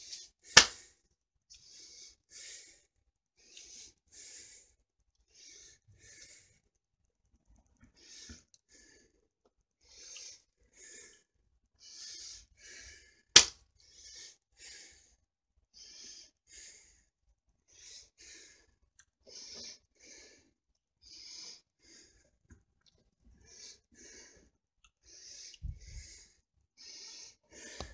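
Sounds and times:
person breathing: 0.0 - 6.6, 7.9 - 17.1, 17.7 - 22.4, 23.4 - 27.9
sharp smack: 0.6 - 0.8.

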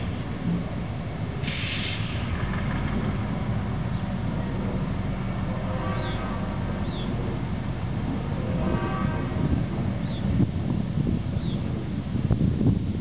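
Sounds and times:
diesel locomotive engine rumbling: 0.0 - 13.0
short hiss: 1.4 - 2.3.

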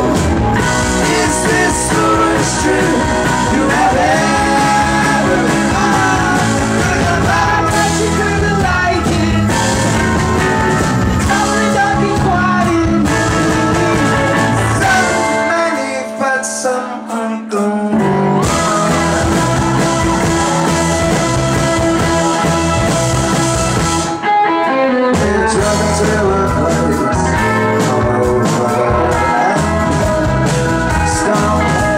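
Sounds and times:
man singing: 0.0 - 9.8, 11.2 - 19.1, 24.9 - 31.9
rock band playing live: 0.0 - 31.9.

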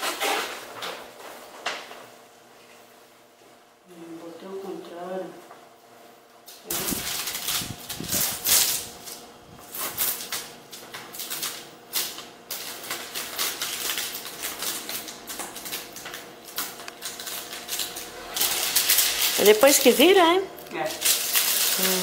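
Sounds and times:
plastic film crinkling: 6.6 - 22.0.

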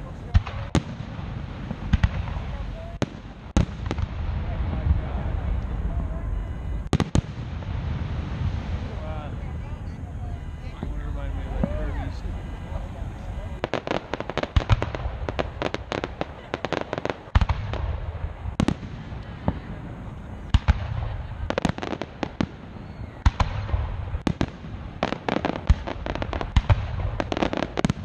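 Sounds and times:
firework bangs: 0.0 - 28.0
low rumble: 1.0 - 21.6.

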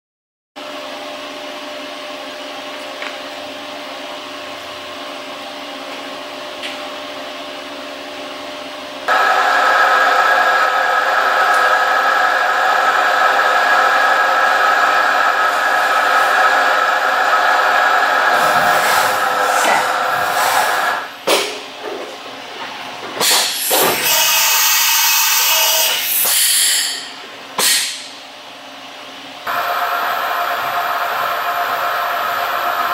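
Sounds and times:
machine motor and fan hum: 0.6 - 32.9
spindle whine: 9.0 - 21.2.

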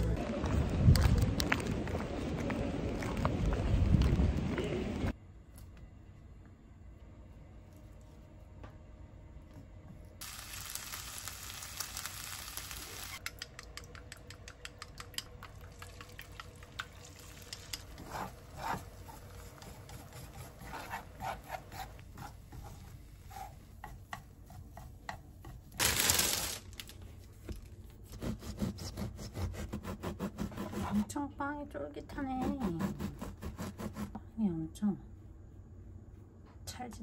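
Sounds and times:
frying pan sizzling and crackling: 10.2 - 13.4, 15.1 - 19.9, 25.8 - 26.8
plastic bag rustling: 25.8 - 27.4.

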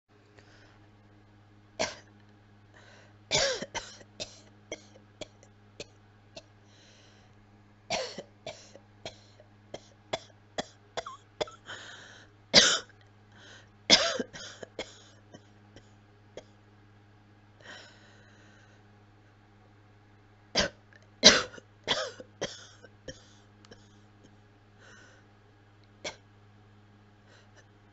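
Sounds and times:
person coughing: 1.8 - 2.1, 3.3 - 5.4, 7.9 - 11.7, 12.6 - 12.9, 13.9 - 15.5, 20.6 - 24.0.

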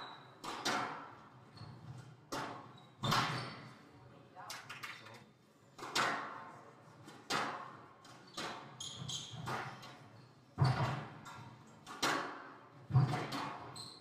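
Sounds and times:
squash ball striking rackets and walls: 0.1 - 3.7, 5.8 - 13.8
shoe squeaks on wooden floor: 8.3 - 9.5, 13.7 - 14.0.

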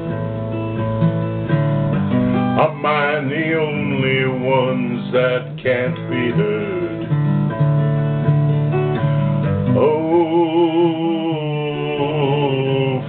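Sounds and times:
acoustic guitar strumming: 0.0 - 13.0
man singing long note: 9.8 - 13.0.

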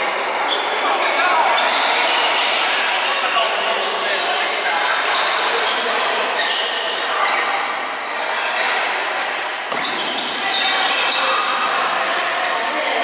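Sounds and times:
shoes squeaking on court: 1.5 - 2.6, 3.8 - 7.6, 9.7 - 11.5
rackets hitting shuttlecocks: 8.6 - 11.0.

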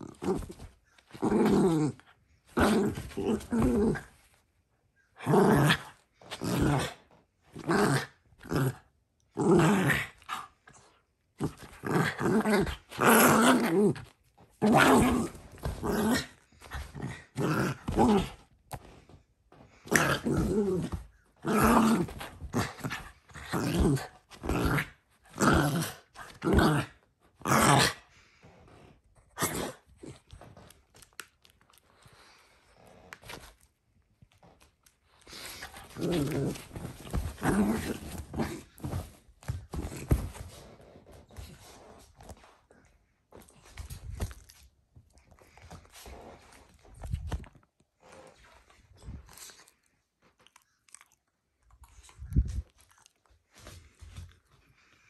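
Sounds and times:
small dog play-growling: 0.0 - 4.3, 5.1 - 19.1, 19.7 - 30.8, 35.2 - 42.5.

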